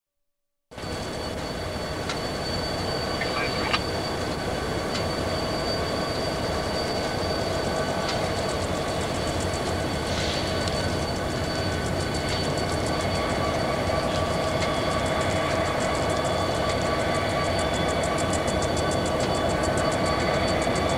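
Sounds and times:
locomotive braking whine: 0.8s - 20.9s
locomotive engine rumble: 2.6s - 5.0s.

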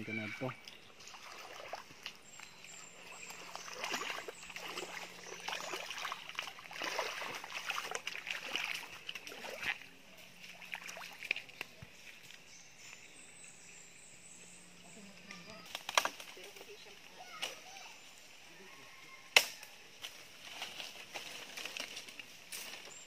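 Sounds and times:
footsteps splashing in a creek: 0.0s - 13.1s.

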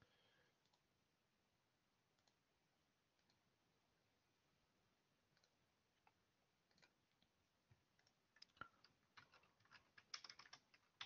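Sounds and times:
computer keyboard typing: 7.9s - 11.0s.

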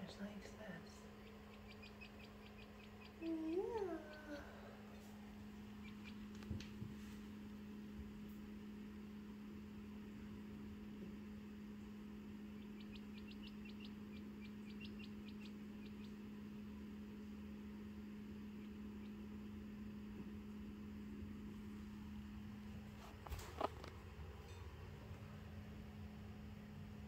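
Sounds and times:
low electrical hum: 0.0s - 27.0s
chick peeping: 0.4s - 6.5s, 12.4s - 16.7s, 18.3s - 19.4s.

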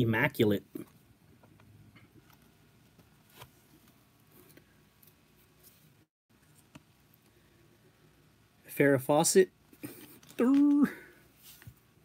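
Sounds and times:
trading cards shuffling: 9.8s - 11.8s.

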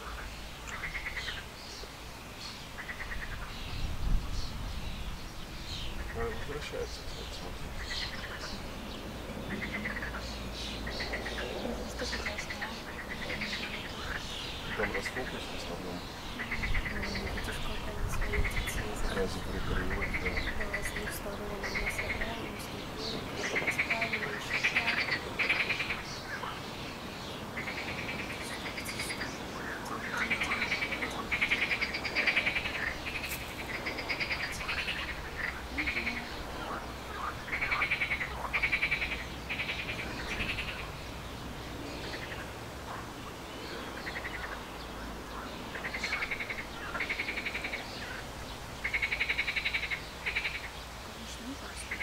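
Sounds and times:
steady low background noise: 0.0s - 52.0s.

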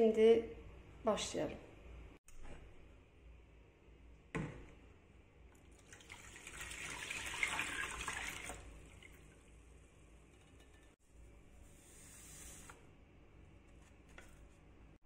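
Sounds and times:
milk pouring and splashing: 5.6s - 9.5s.

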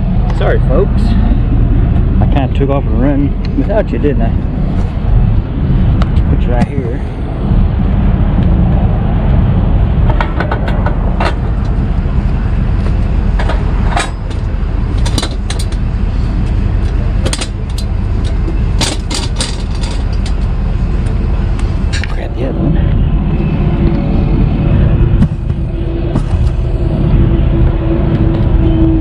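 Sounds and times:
truck engine rumble: 0.0s - 29.0s
sharp clicks and knocks: 10.1s - 11.8s, 12.8s - 22.2s.

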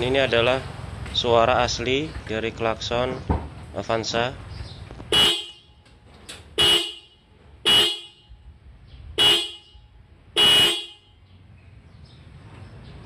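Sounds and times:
car horn beeps: 5.1s - 5.8s, 6.5s - 8.5s, 9.1s - 11.3s.

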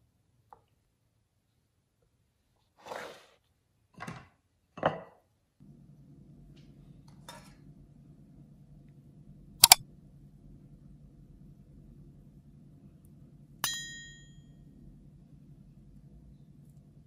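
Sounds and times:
steady low hum: 5.6s - 17.0s.

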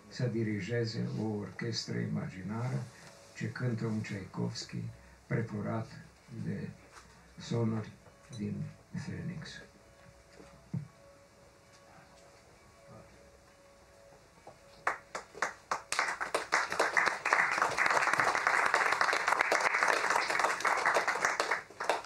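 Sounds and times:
audience applause: 14.8s - 22.0s.

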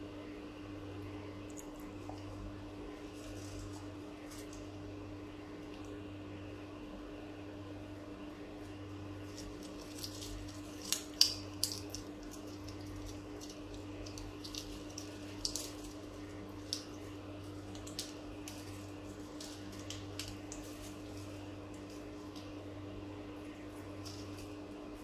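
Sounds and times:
steady low hum: 0.0s - 25.0s
parrot beak crunching food: 9.2s - 22.6s.

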